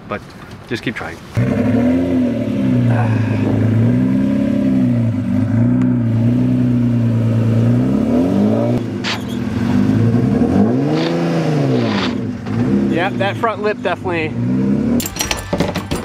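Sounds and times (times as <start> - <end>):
car engine at low revs: 1.3 - 15.0
sharp exhaust crack: 9.0 - 13.4.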